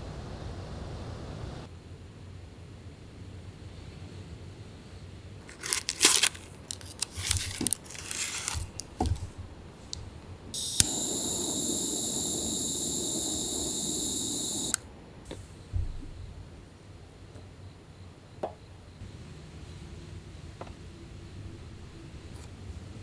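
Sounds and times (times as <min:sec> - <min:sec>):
crinkling tearing handling noises: 0:05.4 - 0:10.1
butane torch flame hissing: 0:06.6 - 0:15.6
torch igniter click: 0:06.7 - 0:14.9.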